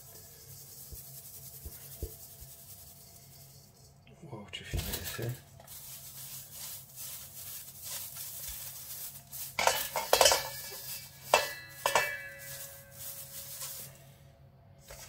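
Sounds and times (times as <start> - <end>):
dried herbs rubbed on mesh sieve: 0.0 - 15.0
metal sieve clanking against bowl: 9.3 - 13.7.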